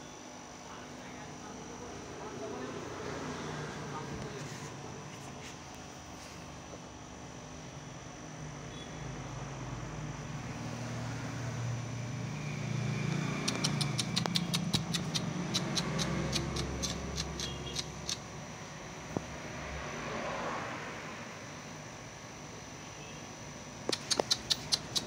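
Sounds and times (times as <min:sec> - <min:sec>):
small animal chirping: 0:12.9 - 0:18.3, 0:23.9 - 0:25.0.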